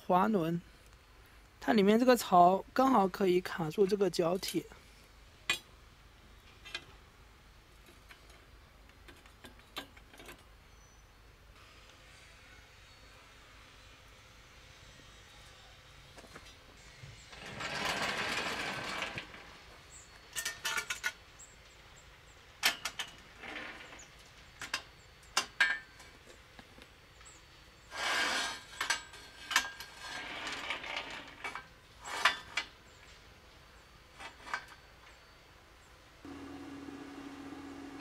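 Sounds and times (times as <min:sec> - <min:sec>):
metal scraping on metal: 0:27.9 - 0:32.7.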